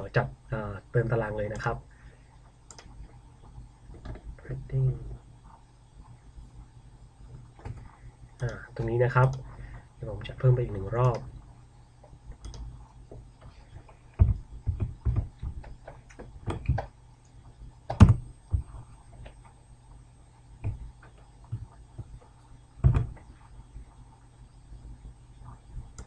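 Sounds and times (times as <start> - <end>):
faint low hum: 0.0 - 26.0
computer keystrokes: 2.7 - 2.9, 12.4 - 12.7, 17.9 - 18.6.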